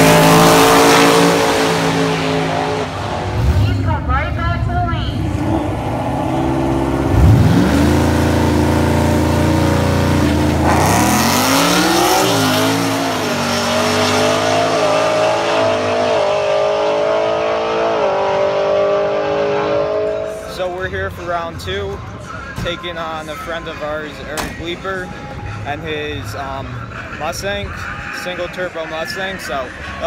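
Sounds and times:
race car engine revving: 0:00.0 - 0:20.8
cars accelerating through gear changes: 0:05.2 - 0:20.5.

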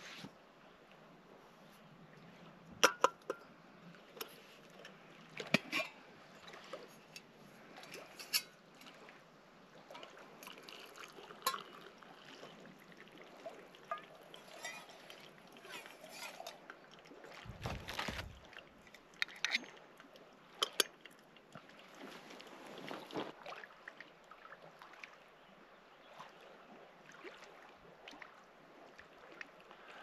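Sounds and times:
faint water sounds: 0:00.0 - 0:30.0
camp handling noises: 0:02.7 - 0:08.8, 0:11.3 - 0:12.0, 0:13.8 - 0:16.8, 0:17.4 - 0:19.7, 0:22.0 - 0:23.4.

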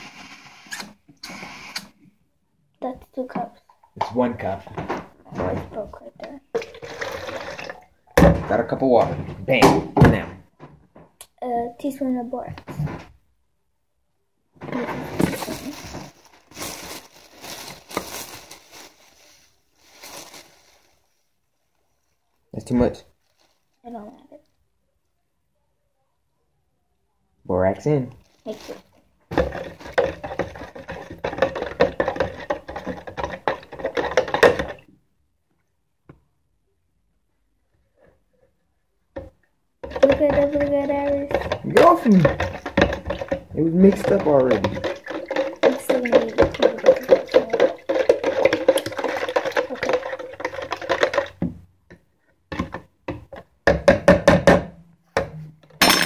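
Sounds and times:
metal spoon knocking plastic jar: 0:39.8 - 0:51.4.

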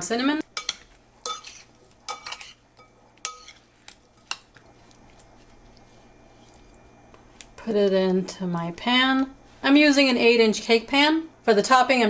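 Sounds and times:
metal spoon clinking glass bowl: 0:00.6 - 0:03.6.

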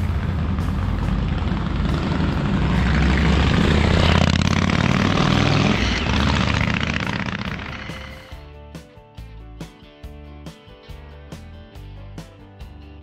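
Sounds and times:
motorcycle engine rumbling: 0:00.0 - 0:08.4.

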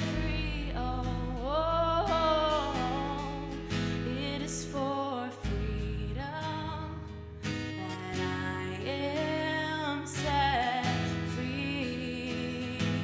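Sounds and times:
electric bass line: 0:00.0 - 0:09.6
strummed acoustic guitar: 0:00.0 - 0:13.0
woman singing: 0:00.0 - 0:13.0.

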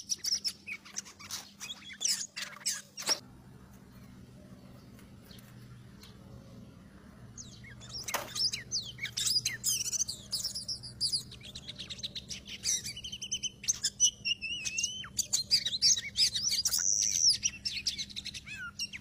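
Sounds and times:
bird whistles and chirps: 0:00.0 - 0:03.2, 0:07.4 - 0:19.0.

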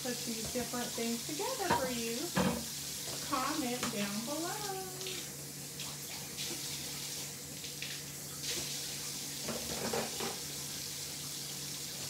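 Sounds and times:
tap running into sink: 0:01.5 - 0:04.0, 0:09.4 - 0:10.5.

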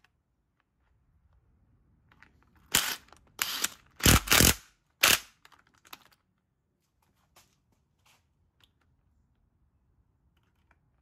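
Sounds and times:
power tool driving bolts: 0:02.7 - 0:05.3.

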